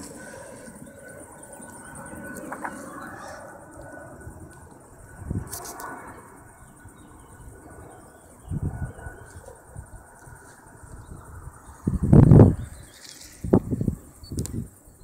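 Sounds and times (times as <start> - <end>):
insects chirring: 0.0 - 15.0
wind buffeting microphone: 0.0 - 15.0.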